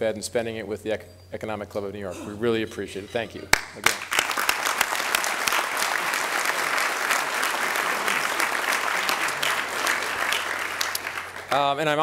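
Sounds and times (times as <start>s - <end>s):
audience applause: 3.5s - 11.8s.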